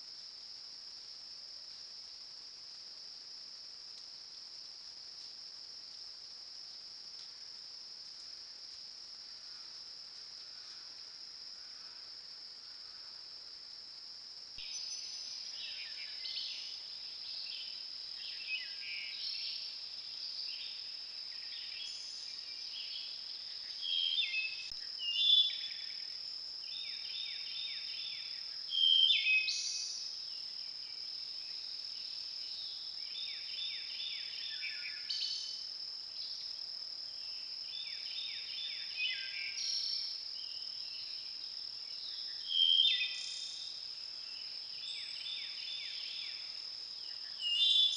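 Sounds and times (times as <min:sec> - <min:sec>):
songbirds singing: 0:20.3 - 0:25.9, 0:44.4 - 0:47.9.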